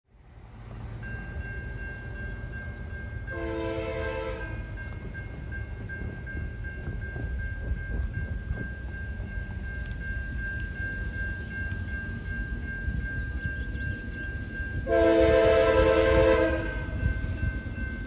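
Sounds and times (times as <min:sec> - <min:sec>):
distant locomotive air horn blast: 0:03.3 - 0:04.6, 0:14.8 - 0:17.0.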